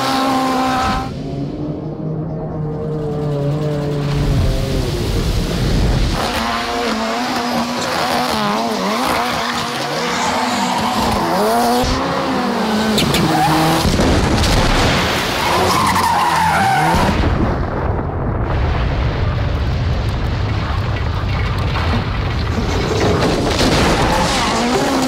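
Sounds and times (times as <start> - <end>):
rally car engine revving: 0.0 - 17.3, 22.4 - 25.0.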